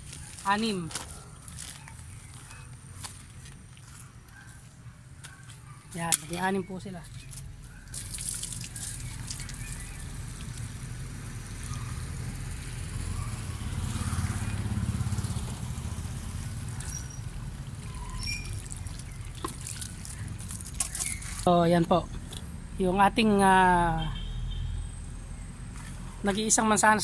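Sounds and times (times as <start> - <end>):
hose water splashing into soil: 7.3 - 11.8, 16.6 - 21.5.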